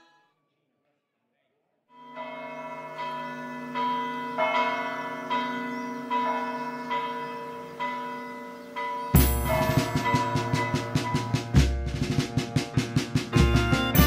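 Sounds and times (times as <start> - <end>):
chiming bell melody: 2.0 - 11.8, 13.6 - 14.0
bass: 9.2 - 14.0
drum roll: 9.2 - 14.0.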